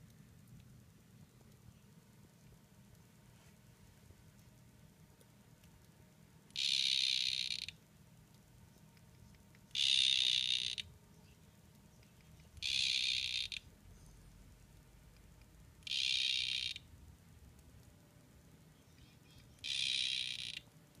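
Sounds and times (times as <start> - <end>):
frog buzzing calls: 6.5 - 7.8, 9.7 - 10.9, 12.6 - 13.6, 15.8 - 16.9, 19.6 - 20.6.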